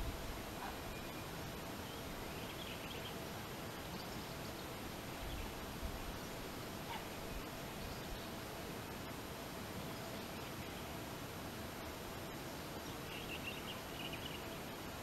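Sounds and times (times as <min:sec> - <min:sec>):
wind rumble on microphone: 0:00.0 - 0:00.8
steady hiss: 0:00.0 - 0:15.0.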